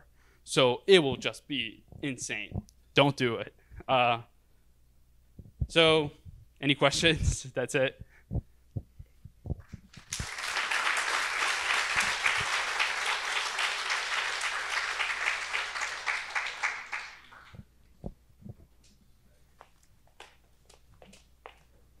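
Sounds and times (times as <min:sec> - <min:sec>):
audience applauding: 0:09.9 - 0:17.7.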